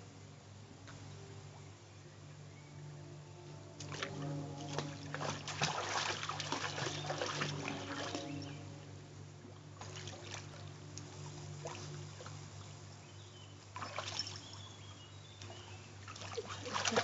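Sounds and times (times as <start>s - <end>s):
low hum: 0.0s - 17.0s
dog splashing in water: 3.8s - 8.6s, 13.8s - 14.6s, 16.1s - 17.0s
trickling drips: 3.8s - 8.9s, 9.5s - 17.0s.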